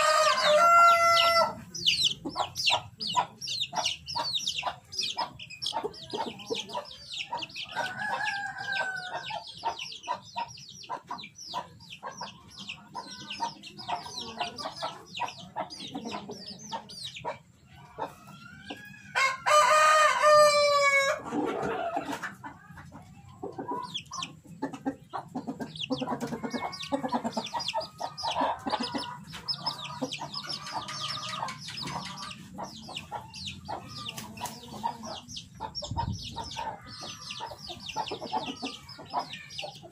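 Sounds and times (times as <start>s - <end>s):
rooster crowing: 0.0s - 1.6s, 7.7s - 9.3s, 18.3s - 21.2s, 26.2s - 27.5s
hen clucking: 0.0s - 39.9s
high chirping: 0.6s - 19.1s, 23.4s - 39.9s.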